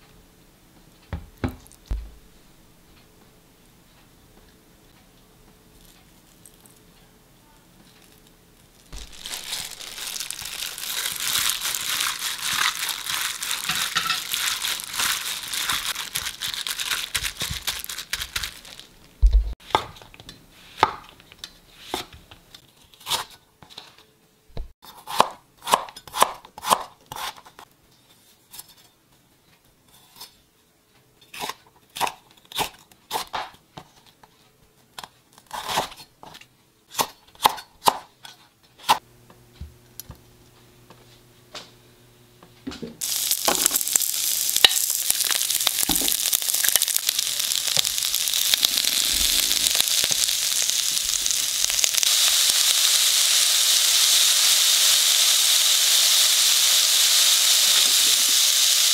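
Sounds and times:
dense crackling rustling: 8.6 - 19.6, 43.0 - 52.9.

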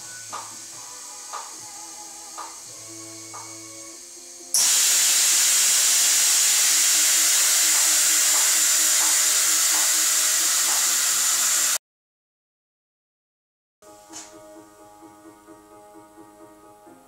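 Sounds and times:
compressed air hissing: 0.0 - 11.8.

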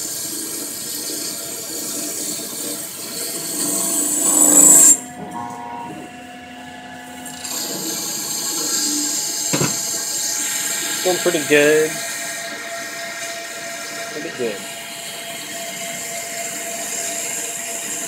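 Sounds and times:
low machine hum: 3.7 - 7.0.

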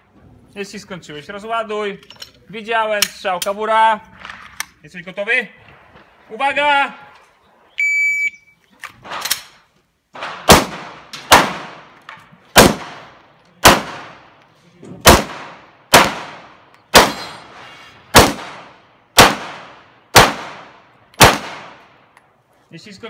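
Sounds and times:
pistol shots echoing: 10.2 - 12.0, 12.6 - 14.3, 15.0 - 17.5, 18.1 - 22.0.

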